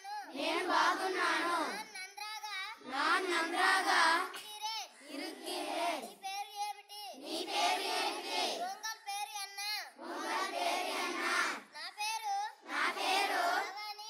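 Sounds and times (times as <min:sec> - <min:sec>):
children chanting together: 0:00.0 - 0:01.9, 0:02.8 - 0:06.2, 0:07.2 - 0:08.8, 0:10.0 - 0:11.8, 0:12.5 - 0:13.8.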